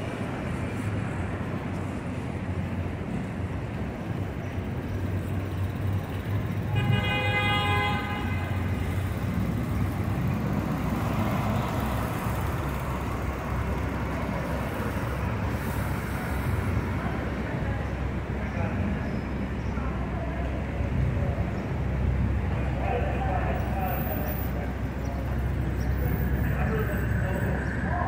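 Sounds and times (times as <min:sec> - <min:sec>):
city street traffic: 0:00.0 - 0:28.0
vehicle horn honking: 0:06.7 - 0:08.7.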